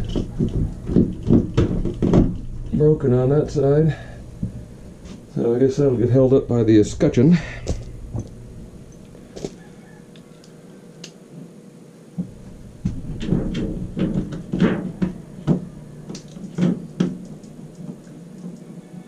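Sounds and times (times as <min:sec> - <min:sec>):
plastic parts knocking and clicking: 0:00.0 - 0:02.4, 0:12.8 - 0:18.6.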